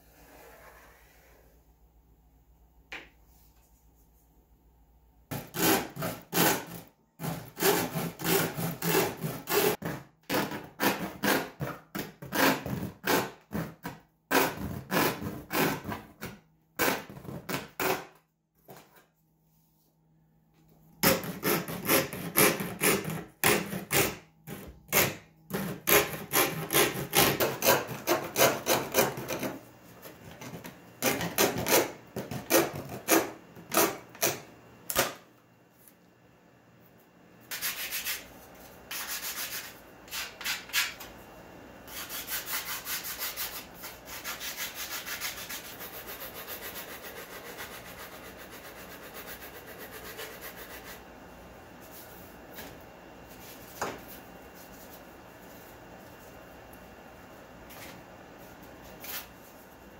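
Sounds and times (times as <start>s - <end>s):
blade rasping through plywood: 5.3s - 16.0s.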